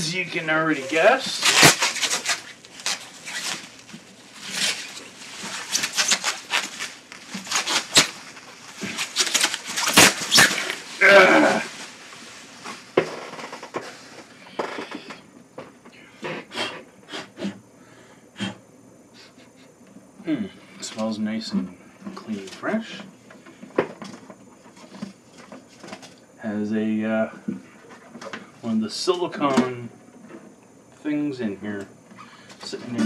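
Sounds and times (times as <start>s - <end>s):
plastic bag rustling: 0.2s - 14.3s.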